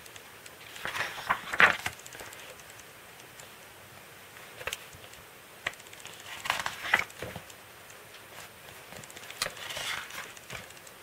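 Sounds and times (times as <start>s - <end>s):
paper page rustling and flapping: 0.7s - 2.6s, 5.7s - 7.5s, 8.4s - 10.7s.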